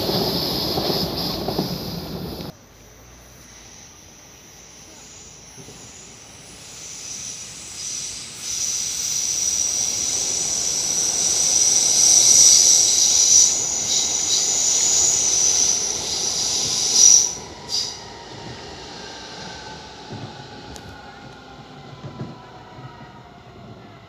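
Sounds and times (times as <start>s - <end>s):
train wheels rumbling on rails: 0.0s - 2.6s, 3.6s - 24.0s
high-pitched wheel squeal: 3.4s - 21.2s.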